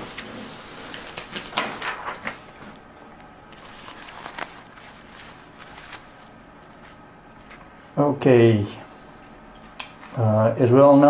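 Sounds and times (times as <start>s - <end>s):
diaper rustling: 3.5s - 7.8s.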